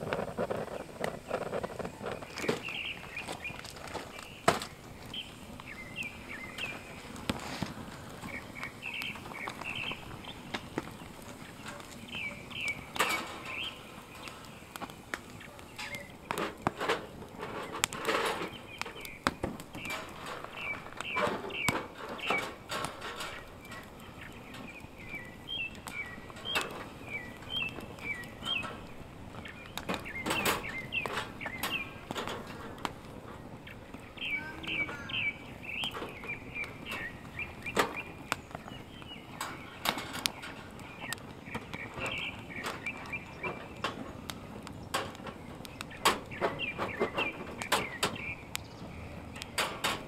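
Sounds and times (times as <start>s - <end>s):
knocks and rustles: 0.0s - 35.2s, 35.8s - 50.0s
small birds chirping: 0.0s - 50.0s.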